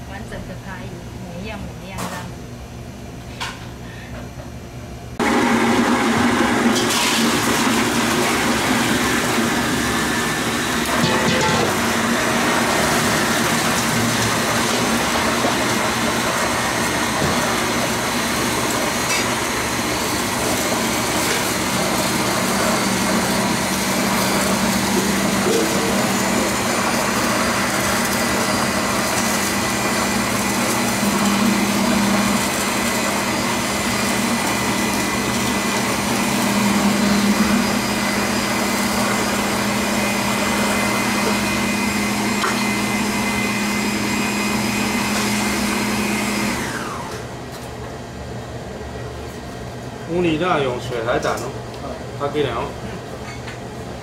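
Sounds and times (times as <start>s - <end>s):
blowtorch hissing: 6.2s - 46.9s.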